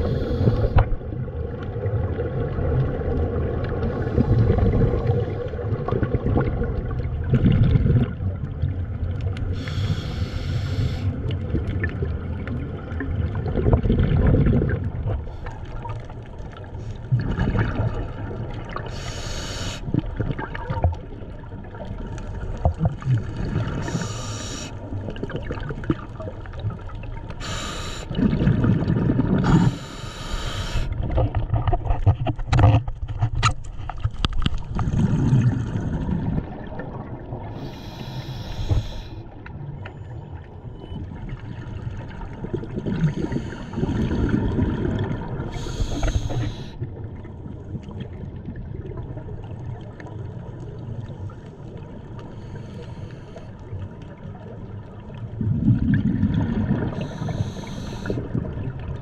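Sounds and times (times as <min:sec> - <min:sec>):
water gurgling and sloshing: 0:00.0 - 0:59.0
bursts of hiss: 0:27.4 - 0:28.1, 0:37.6 - 0:39.2.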